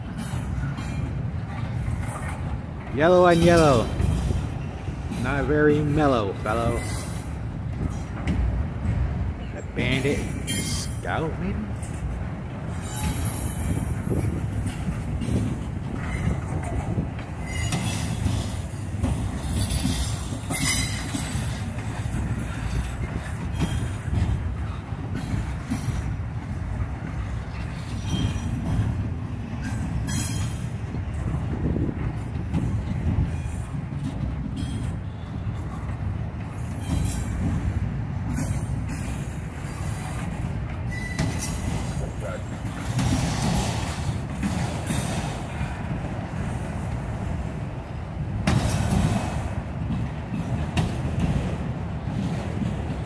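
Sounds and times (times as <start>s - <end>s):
knocks and clacks of trucks: 0.0s - 53.0s
train wheels rumbling on rail: 0.0s - 53.0s
wheel squeals: 9.4s - 11.0s, 12.7s - 26.2s, 27.3s - 28.9s, 29.6s - 30.8s, 36.4s - 40.2s, 40.8s - 45.6s.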